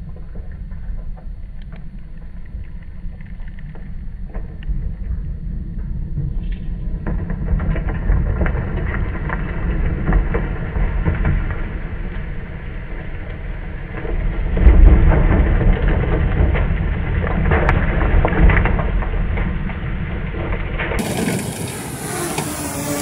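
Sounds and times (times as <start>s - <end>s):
tyres churning through dirt: 7.4s - 23.0s.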